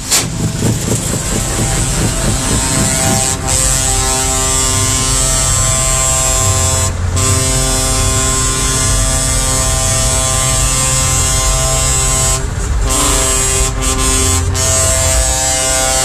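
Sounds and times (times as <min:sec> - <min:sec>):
heavy truck engines idling: 0:00.0 - 0:16.0.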